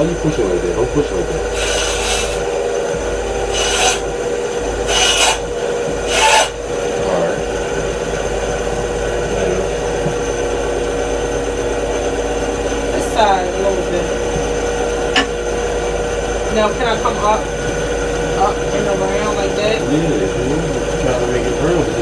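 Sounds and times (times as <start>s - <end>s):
band saw motor hum: 0.0s - 22.0s
saw blade cutting wood: 1.5s - 2.5s, 3.4s - 4.1s, 4.8s - 6.6s.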